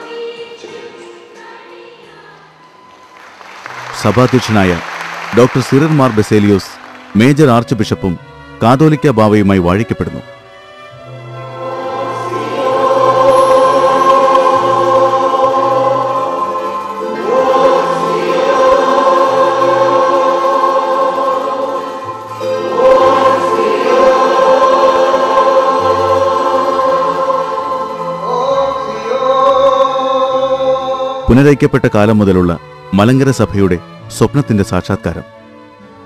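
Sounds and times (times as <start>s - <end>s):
choir singing a hymn: 0.0s - 4.4s, 11.0s - 31.4s.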